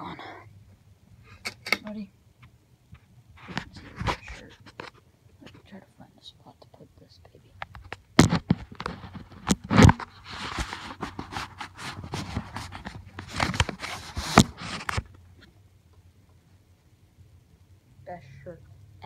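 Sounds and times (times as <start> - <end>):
microphone rubbing against clothing: 3.0 - 5.7, 7.8 - 15.1.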